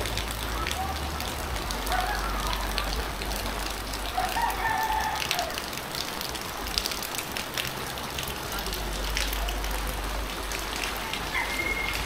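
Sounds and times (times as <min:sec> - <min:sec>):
rain pattering: 0:00.0 - 0:12.0
water dripping: 0:00.0 - 0:12.0
rooster crowing: 0:04.2 - 0:05.6, 0:11.3 - 0:12.0.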